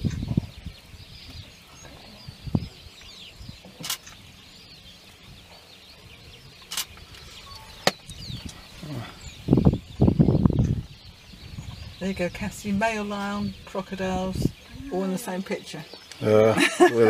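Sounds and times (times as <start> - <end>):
birds chirping: 0.0 - 17.0
sharp clicks: 6.7 - 7.2.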